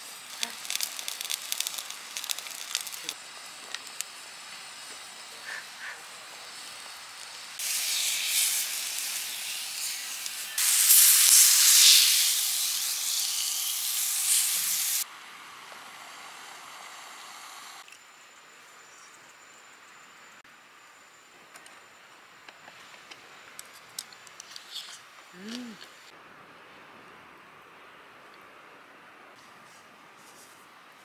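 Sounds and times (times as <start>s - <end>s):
meat sizzling on hot plate: 0.1s - 5.9s, 6.5s - 15.0s.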